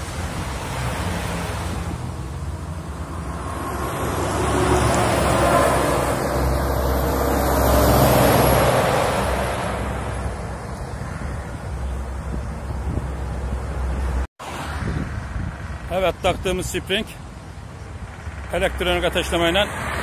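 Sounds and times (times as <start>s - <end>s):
car driving off: 0.0s - 10.7s
vehicles passing on road: 0.0s - 20.0s.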